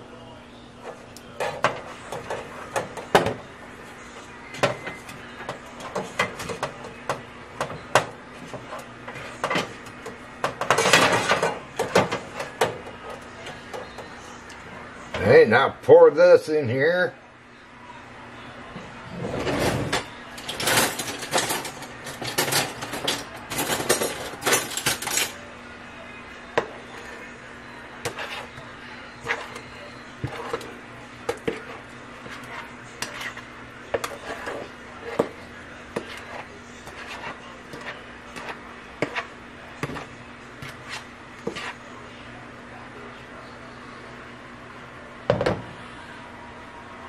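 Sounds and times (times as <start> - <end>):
utensil scraping batter from bowl: 28.0 - 41.9.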